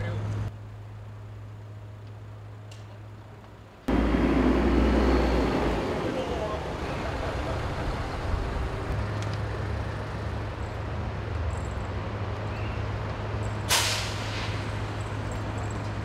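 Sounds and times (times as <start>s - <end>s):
street noise: 0.0s - 16.0s
low engine hum: 3.9s - 13.6s
air release hiss: 13.7s - 14.8s.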